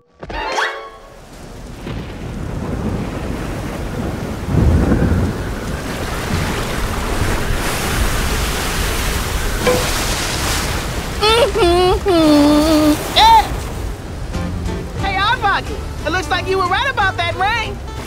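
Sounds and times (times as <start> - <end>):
heavy rain: 0.9 - 18.0
low rumble of thunder: 1.4 - 9.6.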